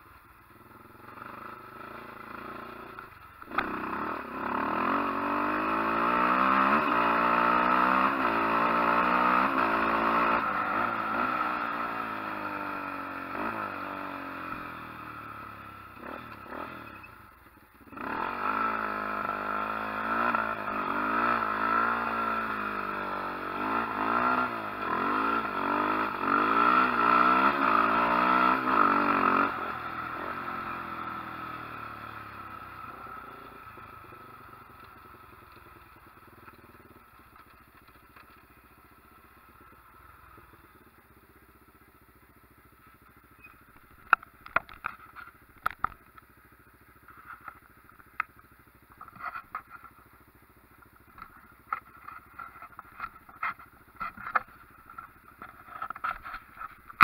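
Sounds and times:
small engine revving: 0:00.6 - 0:38.5.

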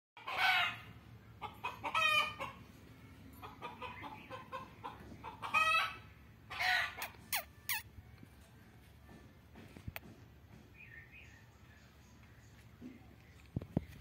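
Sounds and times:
chickens clucking: 0:00.2 - 0:09.3.

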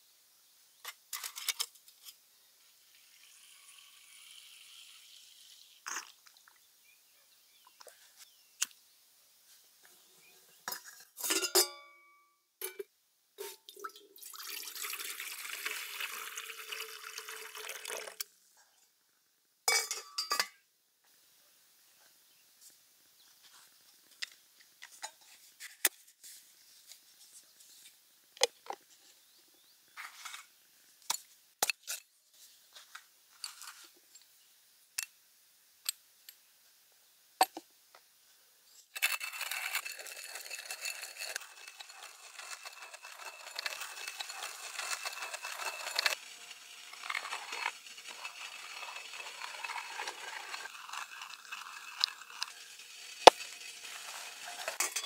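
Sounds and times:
hand coffee grinder grinding beans: 0:02.9 - 0:06.2, 0:14.3 - 0:18.3, 0:38.8 - 0:55.0.

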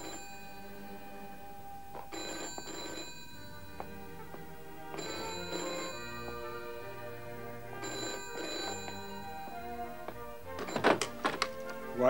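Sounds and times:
telephone double ringing: 0:00.0 - 0:01.3, 0:02.0 - 0:03.8, 0:05.0 - 0:07.0, 0:07.8 - 0:09.8, 0:10.4 - 0:11.3
soft background music: 0:00.0 - 0:12.0.

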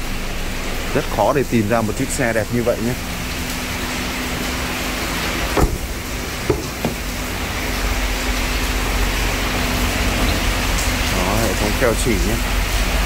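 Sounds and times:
car door knocks: 0:05.5 - 0:07.2.

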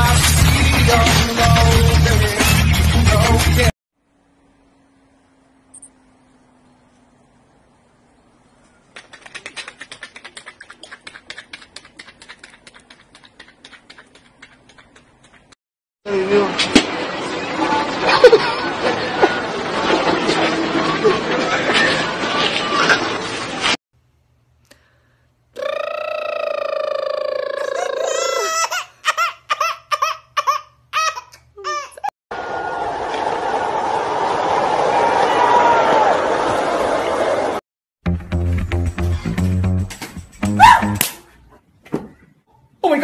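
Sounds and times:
baby crying: 0:27.3 - 0:32.1.

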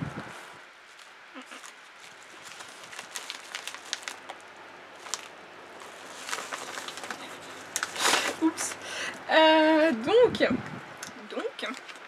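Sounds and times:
padded envelope crinkling and tearing: 0:00.9 - 0:08.8.

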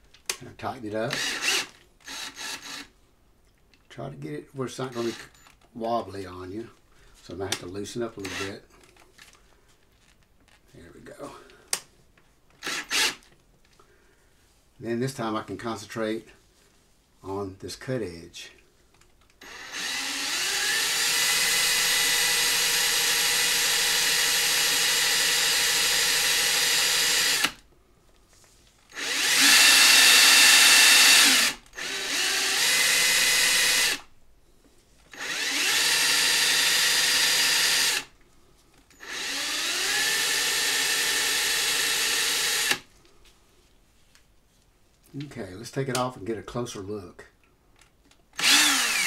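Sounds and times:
drill motor whining: 0:01.1 - 0:02.9, 0:12.6 - 0:13.2, 0:19.4 - 0:27.6, 0:28.9 - 0:34.1, 0:35.1 - 0:38.1, 0:39.0 - 0:42.8, 0:48.4 - 0:49.0.

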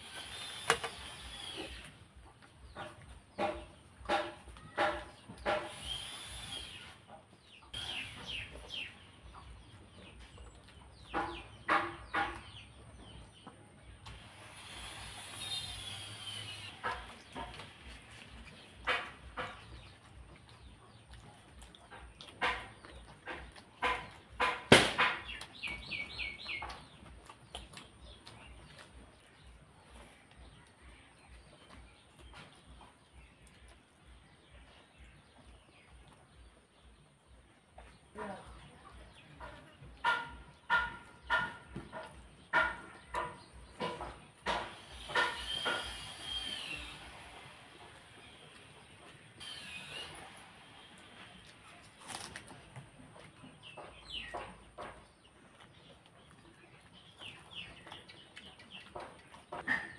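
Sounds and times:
chickens clucking: 0:00.0 - 0:59.9
bird chirping: 0:00.2 - 0:59.9
wet chewing and lip smacks: 0:18.9 - 0:24.3, 0:25.4 - 0:30.8.

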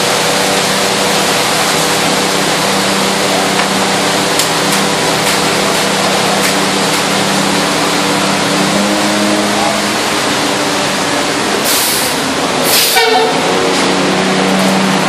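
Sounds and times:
diesel truck engine running: 0:00.0 - 0:15.0
short bursts of hiss: 0:11.6 - 0:13.0.

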